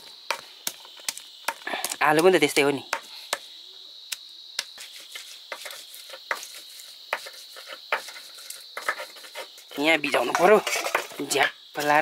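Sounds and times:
stone roller grinding on stone slab: 4.8s - 11.5s.

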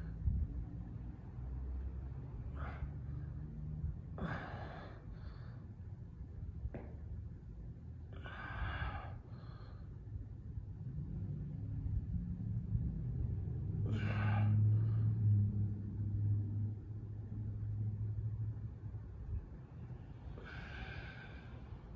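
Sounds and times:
low steady rumble: 0.0s - 21.9s
person breathing: 4.2s - 5.8s, 8.2s - 10.0s, 13.9s - 15.6s, 20.4s - 21.9s.

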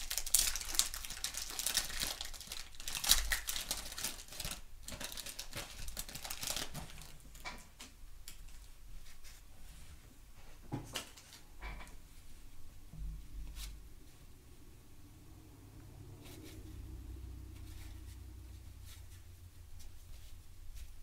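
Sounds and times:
wax paper wrapper tearing: 0.0s - 7.1s
faint paper rustling: 8.3s - 14.3s, 16.2s - 21.0s.

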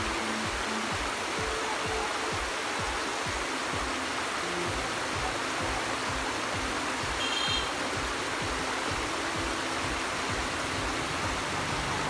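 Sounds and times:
background music with low beat: 0.0s - 12.0s
river water rushing over rapids: 0.0s - 12.0s.

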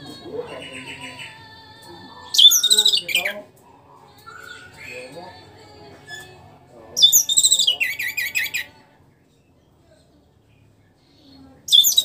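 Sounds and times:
thrush singing whistled notes: 2.3s - 3.4s, 4.2s - 5.1s, 7.0s - 8.7s, 11.7s - 12.0s.

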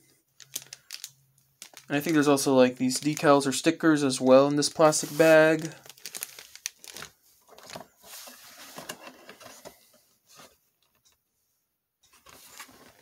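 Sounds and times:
plastic bag rustling: 0.4s - 10.6s.

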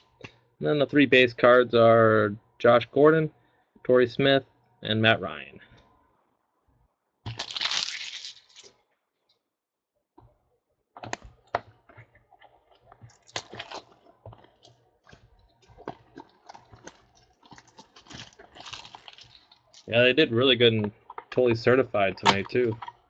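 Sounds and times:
packaging tearing and rustling: 7.3s - 8.8s, 13.1s - 14.0s, 16.4s - 19.9s.

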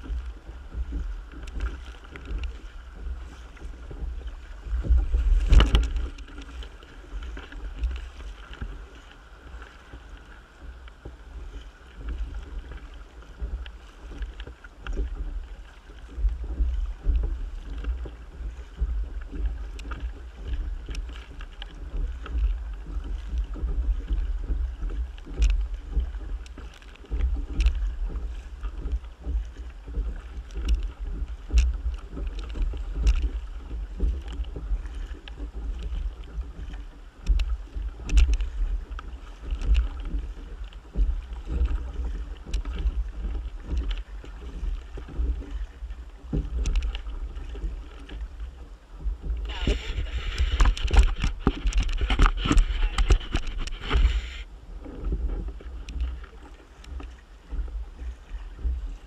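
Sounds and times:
wind buffeting microphone: 0.0s - 8.6s, 49.0s - 56.2s
paddle splashing: 0.0s - 59.0s
water slapping against hull: 0.0s - 59.0s.

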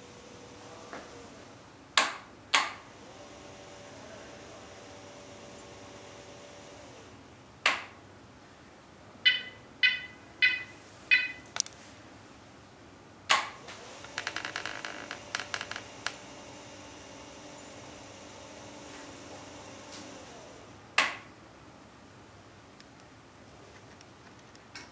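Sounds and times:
electric motors whining: 0.0s - 1.4s, 2.9s - 7.2s, 13.6s - 20.8s
controller beeping: 9.2s - 11.6s.

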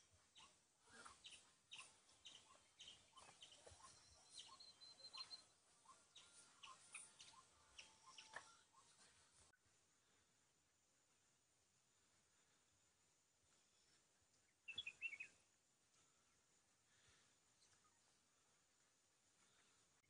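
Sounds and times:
small birds chirping: 0.0s - 9.6s, 13.4s - 20.0s
bird trill: 0.4s - 8.9s, 14.6s - 15.4s.

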